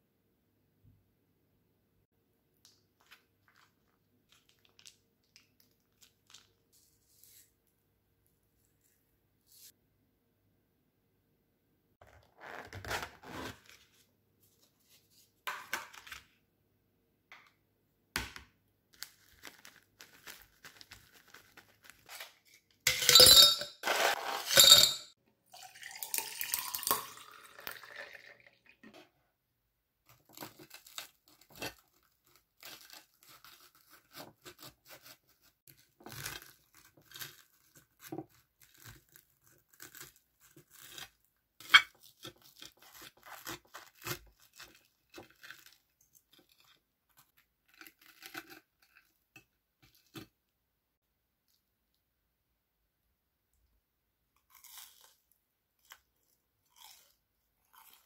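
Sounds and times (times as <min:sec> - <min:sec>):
ice cubes clinking in glass: 0:22.9 - 0:28.4
drink pouring into glass: 0:25.5 - 0:28.8
knife cutting crisp breaded food: 0:30.1 - 0:50.3.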